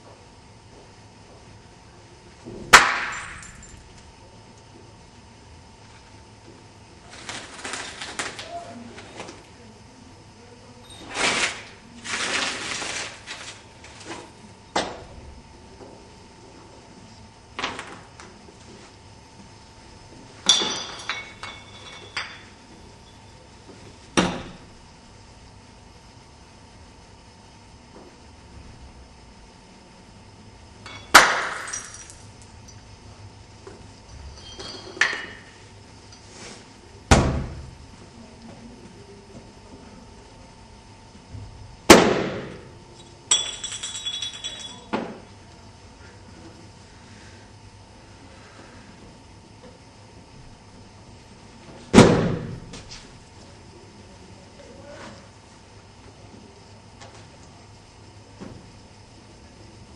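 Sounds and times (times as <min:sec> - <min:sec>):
crash of hard objects: 0:02.7 - 0:03.7, 0:31.1 - 0:32.2
hard objects knocking and clinking: 0:20.4 - 0:22.6, 0:43.3 - 0:45.0
rapid clinking and rattling: 0:43.3 - 0:44.9.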